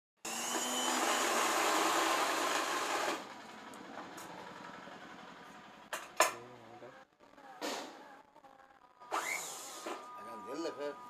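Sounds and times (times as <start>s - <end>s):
sewing machine running: 0.3s - 5.4s.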